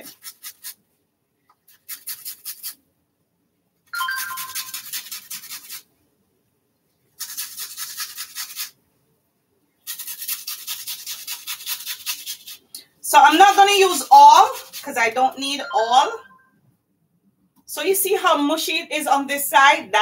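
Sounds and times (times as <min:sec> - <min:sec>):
onion rasping on a grater: 0:00.0 - 0:00.8, 0:01.6 - 0:02.8, 0:04.2 - 0:05.9, 0:07.2 - 0:08.8, 0:09.8 - 0:15.1.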